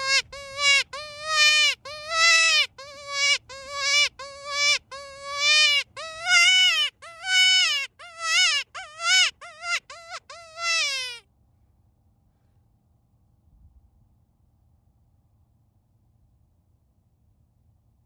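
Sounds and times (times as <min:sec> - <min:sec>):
predator call bleating cries: 0:00.0 - 0:11.2.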